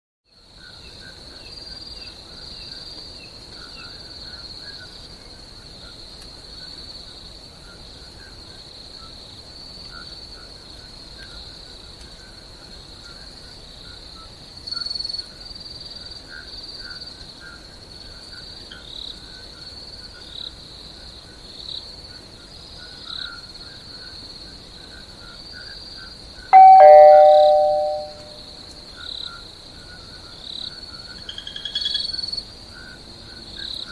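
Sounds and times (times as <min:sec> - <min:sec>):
ding-dong chime: 0:26.6 - 0:28.4.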